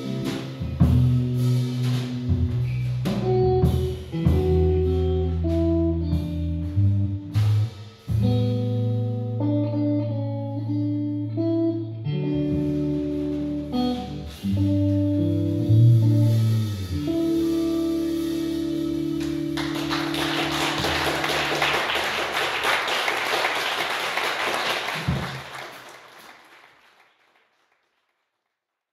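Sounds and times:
electric guitars ringing chords: 0:08.2 - 0:21.9
audience applause: 0:19.2 - 0:28.2.

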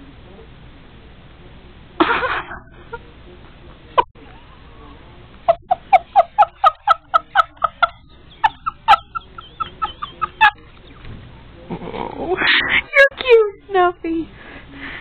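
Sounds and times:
woman giggling: 0:05.5 - 0:10.7.

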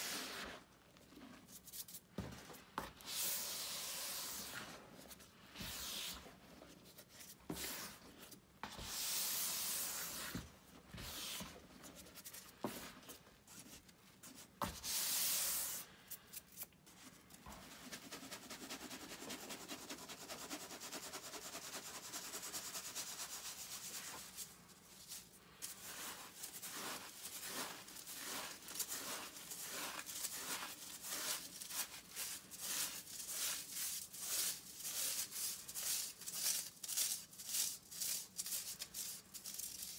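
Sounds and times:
chalk sifted through sieve: 0:00.0 - 0:39.9
chalk crumbled by hand: 0:23.9 - 0:39.9.

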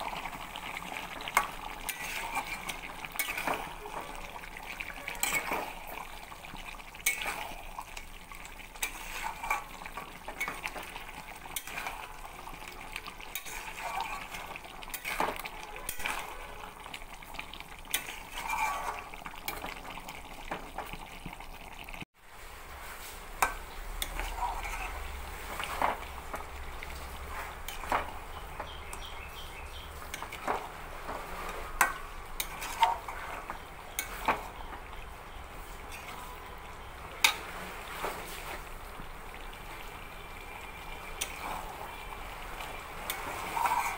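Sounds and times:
food sizzling: 0:00.0 - 0:43.9
spatula scraping metal pot: 0:00.9 - 0:06.1, 0:08.8 - 0:16.5, 0:17.9 - 0:19.8, 0:23.4 - 0:26.3, 0:27.2 - 0:34.7, 0:35.6 - 0:36.5, 0:43.0 - 0:43.9.

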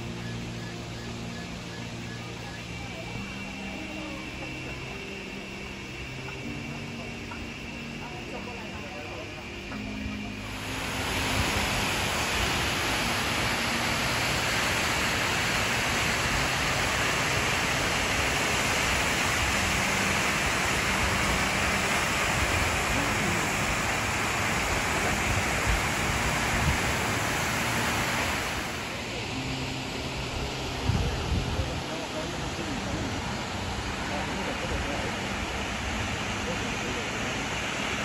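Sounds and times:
waterfall rushing: 0:10.2 - 0:38.0.

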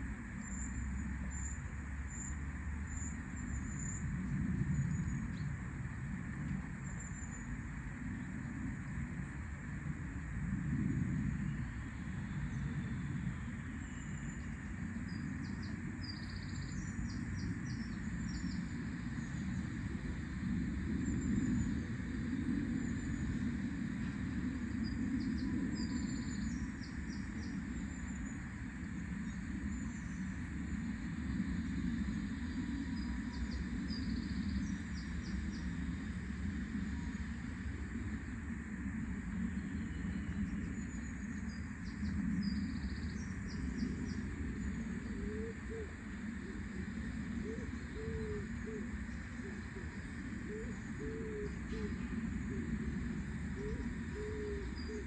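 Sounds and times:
low outdoor rumble: 0:00.0 - 0:55.0
small birds twittering: 0:00.2 - 0:08.6, 0:11.3 - 0:55.0
faint bird chirps: 0:11.4 - 0:19.8.

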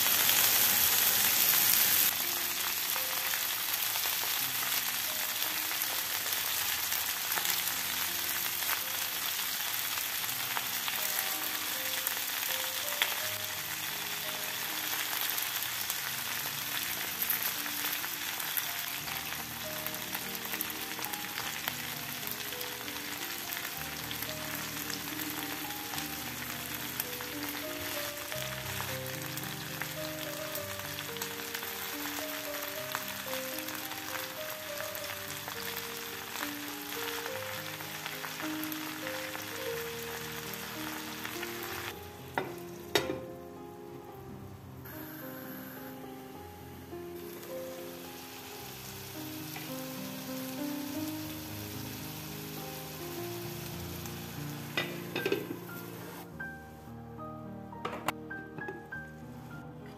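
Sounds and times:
fish sizzling in oil: 0:00.0 - 0:43.2, 0:47.2 - 0:56.3.

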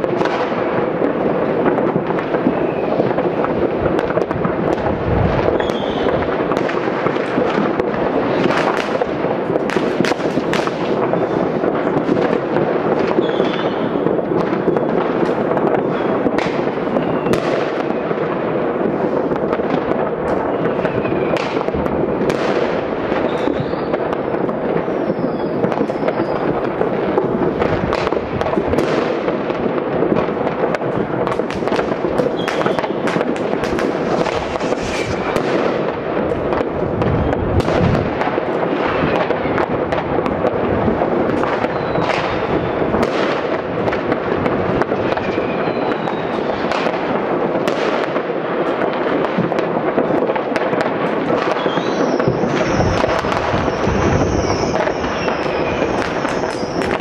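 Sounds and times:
crackle and banging of fireworks: 0:00.0 - 0:57.0
rocket whistles: 0:05.5 - 0:06.2, 0:13.2 - 0:13.9, 0:16.9 - 0:17.5, 0:23.2 - 0:24.0, 0:24.9 - 0:26.6, 0:32.3 - 0:33.2, 0:33.8 - 0:35.5, 0:37.0 - 0:37.7, 0:41.6 - 0:42.7, 0:45.2 - 0:46.6, 0:51.5 - 0:57.0.

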